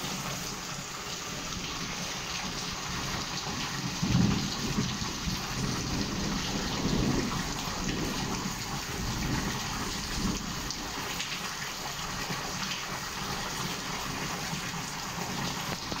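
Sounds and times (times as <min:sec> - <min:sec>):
rain falling steadily: 0:00.0 - 0:16.0
low rolling thunder: 0:02.9 - 0:11.2.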